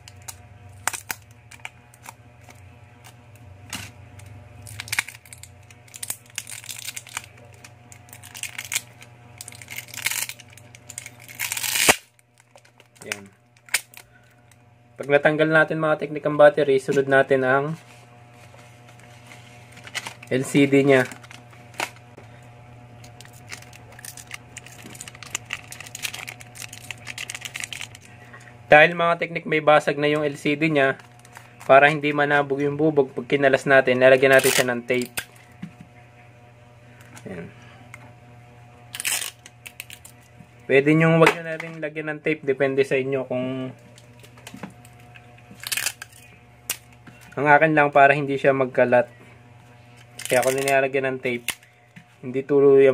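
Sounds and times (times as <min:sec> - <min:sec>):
plastic tape crinkling: 0:00.0 - 0:03.1, 0:04.6 - 0:14.1, 0:19.2 - 0:22.0, 0:23.0 - 0:28.1, 0:34.2 - 0:35.4, 0:38.9 - 0:40.3, 0:44.0 - 0:47.0, 0:50.0 - 0:50.8
steady low hum: 0:00.0 - 0:52.9.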